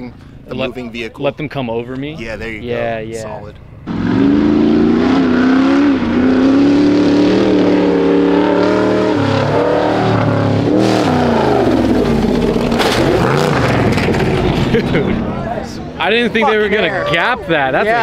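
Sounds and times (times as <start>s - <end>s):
truck engine revving high: 3.8s - 16.0s.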